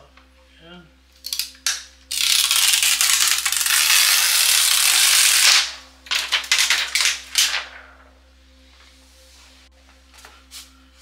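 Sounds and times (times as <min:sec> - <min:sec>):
plastic film tearing: 0:01.2 - 0:07.8
plastic sheet crinkling: 0:02.2 - 0:08.0.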